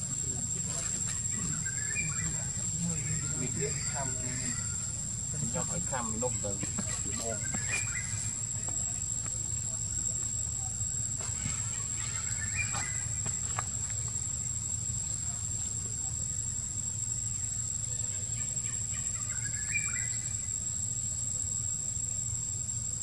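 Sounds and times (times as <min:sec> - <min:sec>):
high-pitched insect drone: 0:00.0 - 0:23.0
chirping calls: 0:00.3 - 0:09.0, 0:11.5 - 0:13.6, 0:17.9 - 0:20.6.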